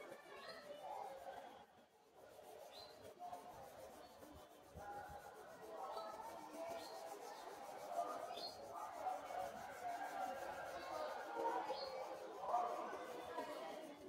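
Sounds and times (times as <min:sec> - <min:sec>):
faint background voices: 0:00.0 - 0:14.0
pencil scratching on paper: 0:02.2 - 0:14.0.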